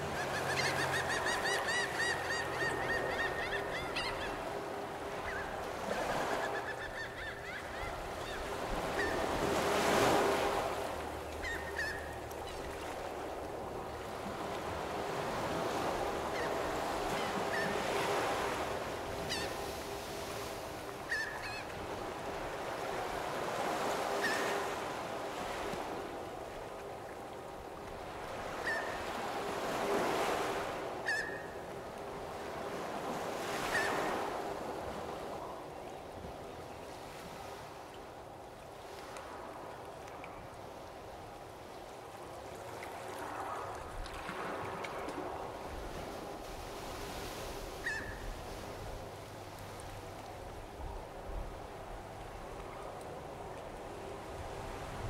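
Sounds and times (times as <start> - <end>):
lake waves washing in: 0.0 - 2.8, 31.7 - 55.0.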